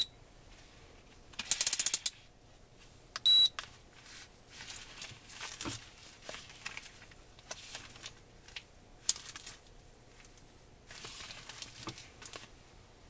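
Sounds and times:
gloves rustling on plastic: 3.7s - 12.7s.

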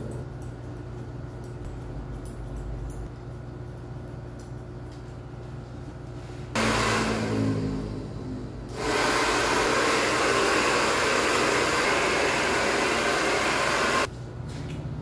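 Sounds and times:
hair dryer blowing: 6.6s - 14.1s.

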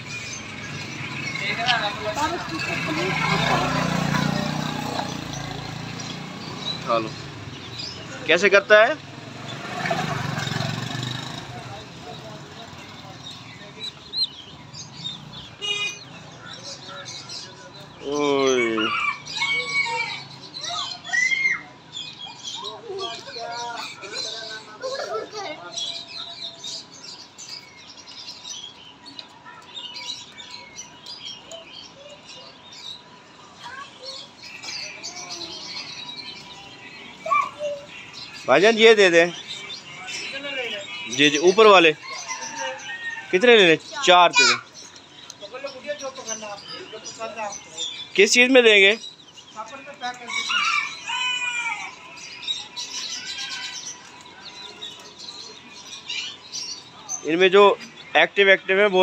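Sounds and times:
chicks peeping: 0.0s - 21.3s, 22.0s - 59.0s
caged birds chirping: 0.0s - 59.0s.

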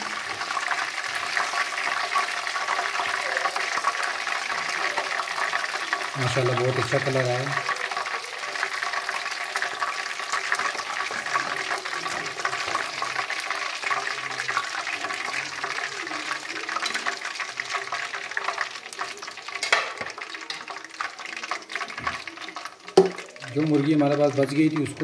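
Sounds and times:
hot oil sizzling and crackling: 0.0s - 25.0s
sharp tap: 23.0s - 23.2s.

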